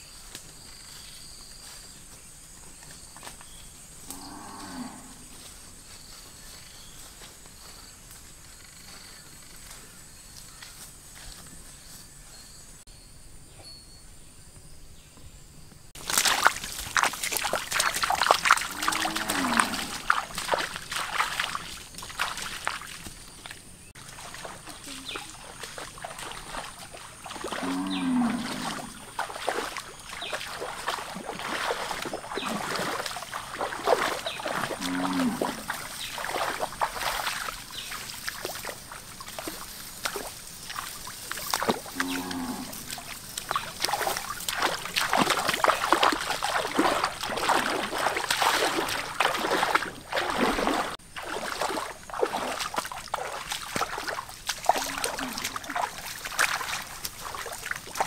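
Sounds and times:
footsteps splashing in water: 0:16.0 - 0:58.0.

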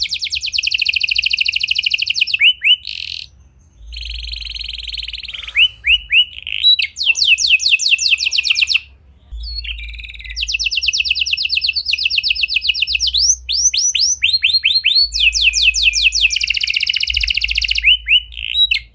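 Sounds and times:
canary singing trills: 0:00.0 - 0:18.9.

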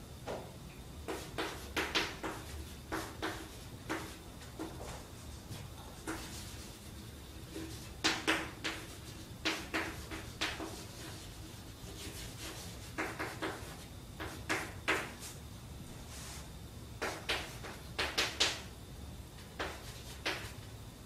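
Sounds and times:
chalk scratching on blackboard: 0:01.1 - 0:05.0, 0:06.0 - 0:15.4, 0:19.6 - 0:20.6.

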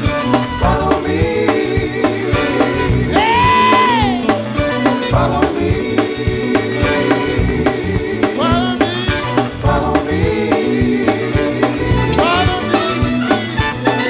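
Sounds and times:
gospel music: 0:00.0 - 0:14.0
person singing: 0:00.6 - 0:13.4.

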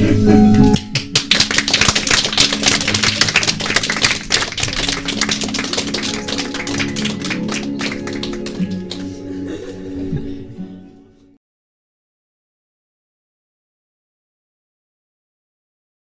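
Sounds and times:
background music: 0:00.0 - 0:11.4
audience applauding: 0:01.0 - 0:09.2.

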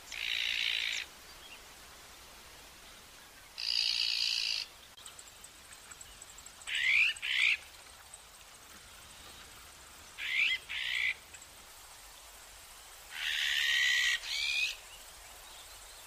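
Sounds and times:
magpie harsh rasping calls: 0:13.1 - 0:14.7.

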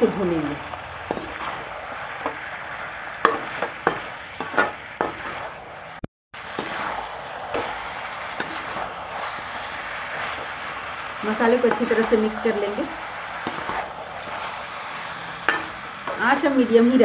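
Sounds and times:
chicken sizzling in a pan: 0:00.0 - 0:17.0
metal spatula scraping pan: 0:01.1 - 0:02.4, 0:03.2 - 0:05.5, 0:06.6 - 0:09.4, 0:11.3 - 0:16.8
spatula clinking on pan: 0:15.5 - 0:15.7.

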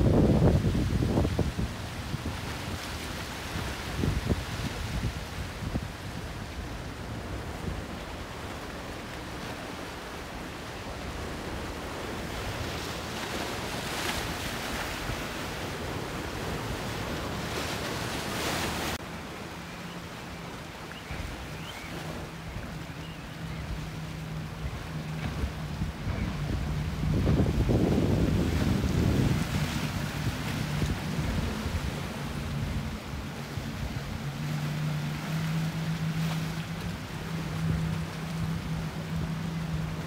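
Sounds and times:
wind buffeting microphone: 0:00.0 - 0:08.4, 0:21.1 - 0:35.2
boat engine low drone: 0:00.0 - 0:40.0
waves churning and breaking: 0:00.0 - 0:40.0.

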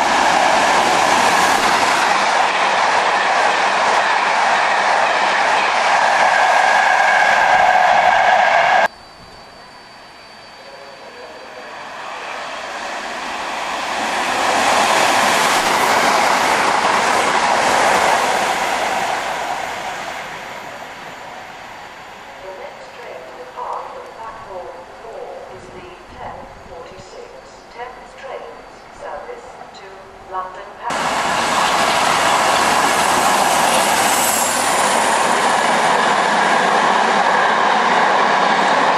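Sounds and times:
wheels rushing on rail: 0:00.0 - 0:26.9, 0:30.9 - 0:38.9
diesel train passing at speed: 0:00.0 - 0:38.9
faint high whine: 0:08.9 - 0:12.0.

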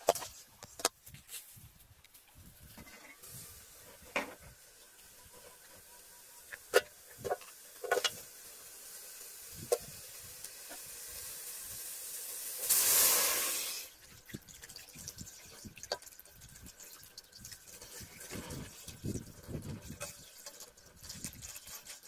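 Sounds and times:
loud hiss: 0:07.6 - 0:13.9.

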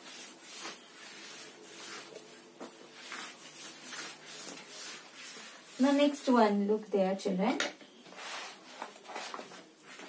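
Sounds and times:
duster rubbing on chalkboard: 0:00.0 - 0:06.4.

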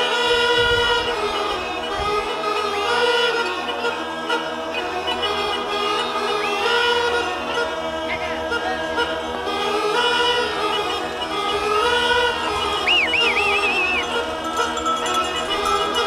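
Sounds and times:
choir singing held chords: 0:00.0 - 0:16.0.

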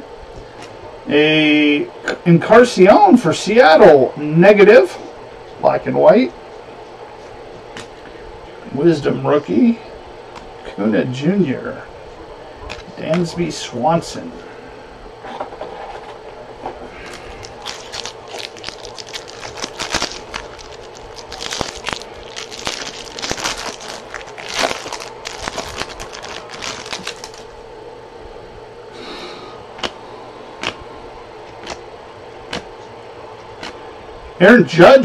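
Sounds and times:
foil wrapper crinkling and tearing: 0:17.0 - 0:27.5.

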